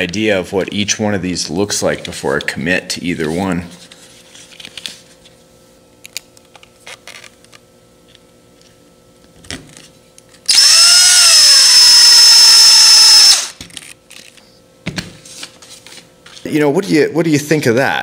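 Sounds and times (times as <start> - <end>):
electric screwdriver whining: 10.5 - 13.6.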